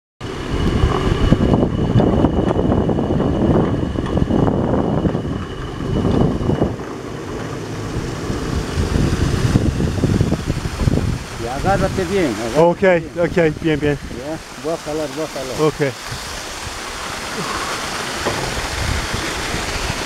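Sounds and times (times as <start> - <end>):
wind buffeting microphone: 0.2 - 20.0
flooded river rushing: 5.2 - 20.0.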